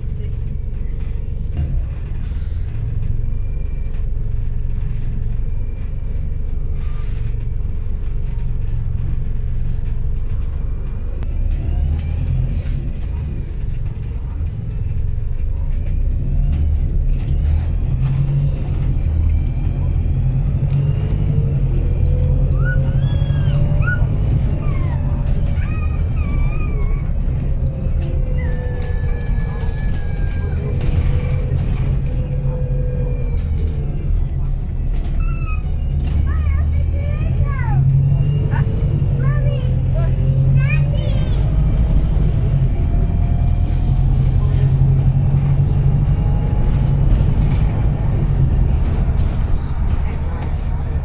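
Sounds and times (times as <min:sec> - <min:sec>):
bus engine rumble: 0:00.0 - 0:51.0
rising drivetrain whine: 0:00.0 - 0:51.0.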